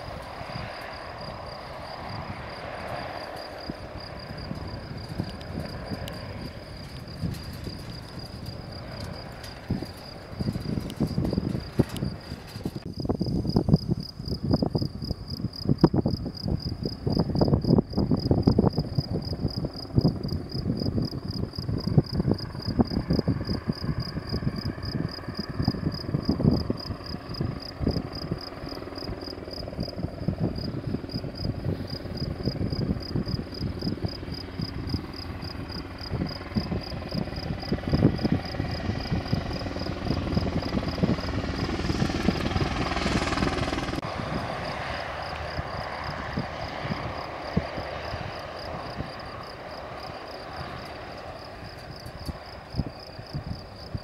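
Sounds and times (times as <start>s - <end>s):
helicopter rotor chopping: 0.0s - 12.9s, 17.0s - 54.0s
turbine engines whining: 0.0s - 12.9s, 26.2s - 54.0s
crickets chirping: 0.0s - 54.0s.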